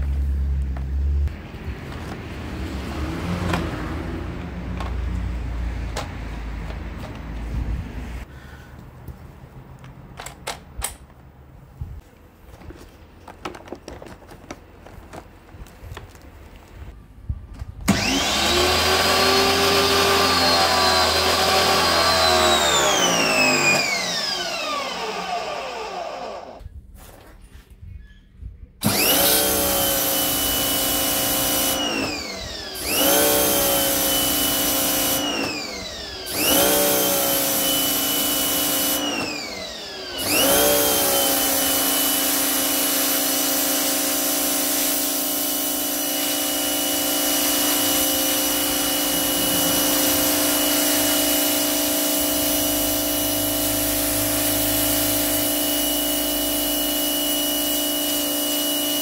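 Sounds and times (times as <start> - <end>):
pressure washer motor whining: 17.8 - 26.6, 28.8 - 59.0
water jet spraying paving: 32.8 - 35.3, 36.3 - 39.0, 41.2 - 56.6.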